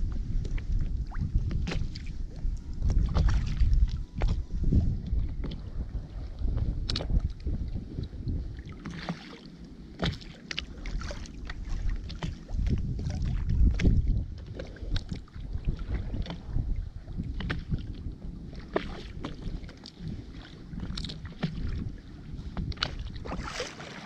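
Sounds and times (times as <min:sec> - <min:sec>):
wind rumbling on microphone: 0:00.0 - 0:24.0.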